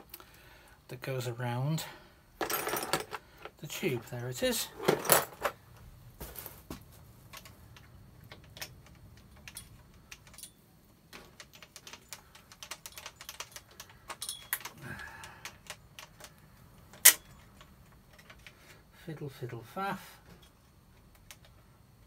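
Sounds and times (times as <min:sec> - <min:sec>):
small metal parts clicking: 0:07.3 - 0:18.7.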